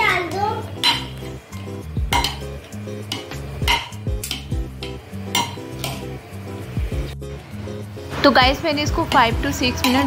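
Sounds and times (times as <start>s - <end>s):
background music with steady beat: 0.0s - 10.0s
ladle knocking and scraping pot: 0.8s - 6.2s.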